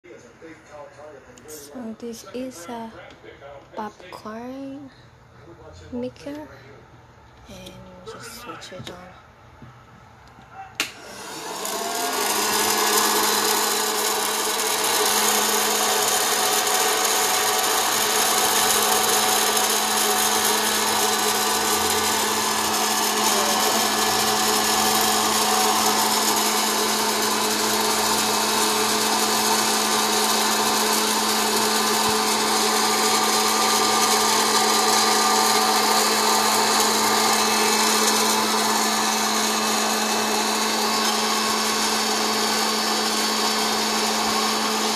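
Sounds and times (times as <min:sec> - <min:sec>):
popcorn maker switch click: 0:10.8 - 0:11.0
fan motor whirring: 0:10.9 - 0:44.9.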